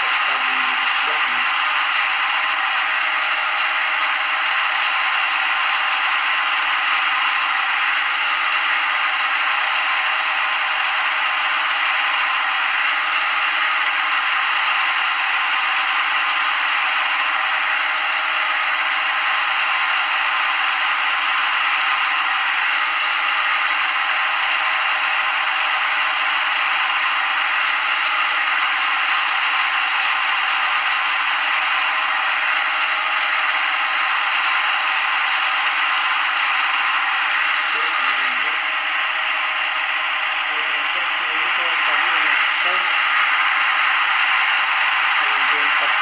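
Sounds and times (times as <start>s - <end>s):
simulated lathe hiss with tones: 0.0s - 46.0s.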